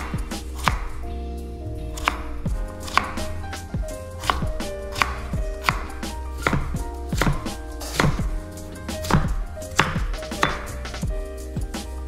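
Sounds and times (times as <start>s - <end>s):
knife chopping on cutting board: 0.0s - 0.9s, 2.0s - 2.2s, 2.8s - 3.4s, 4.2s - 8.3s, 9.0s - 10.8s.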